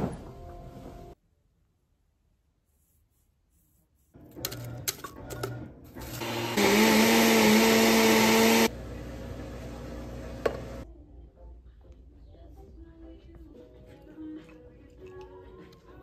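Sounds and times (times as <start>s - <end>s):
blender motor whirring: 6.0s - 10.8s.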